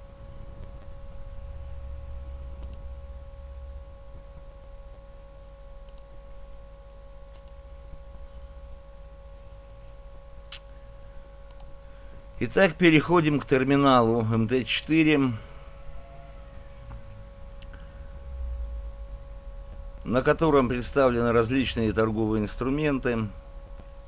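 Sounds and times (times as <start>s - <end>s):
electrical hum with whine: 0.0s - 24.0s
computer mouse clicks: 2.6s - 2.8s, 5.8s - 6.1s, 7.3s - 7.6s, 11.5s - 11.7s.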